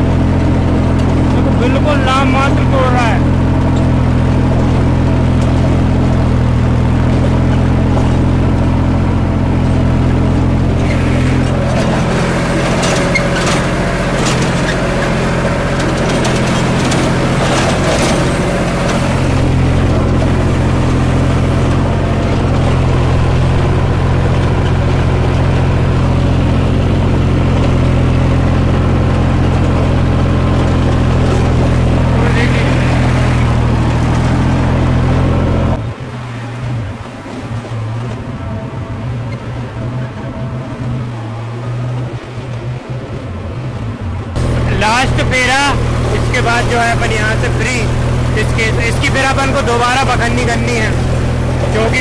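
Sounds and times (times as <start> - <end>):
rough clattering: 0.0 - 35.8
tractor engine running under load: 0.0 - 52.0.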